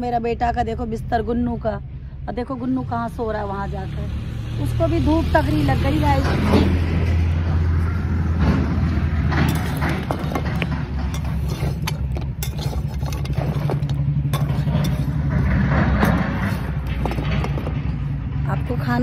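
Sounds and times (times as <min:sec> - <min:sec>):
low engine-like hum: 0:00.0 - 0:19.0
metal spatula clicking and scraping: 0:09.3 - 0:17.8.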